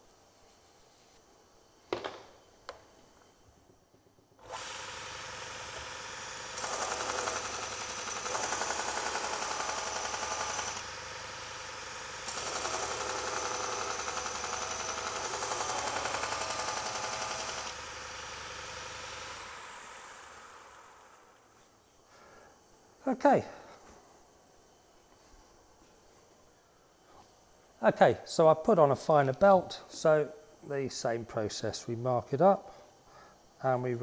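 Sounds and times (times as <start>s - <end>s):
belt sander running: 4.4s - 21.5s.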